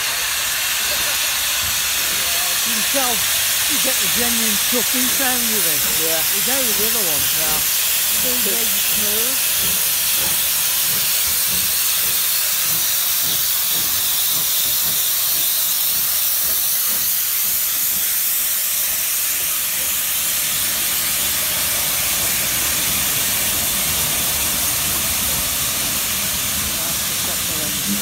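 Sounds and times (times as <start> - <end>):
steam hissing loudly: 0.0 - 28.0.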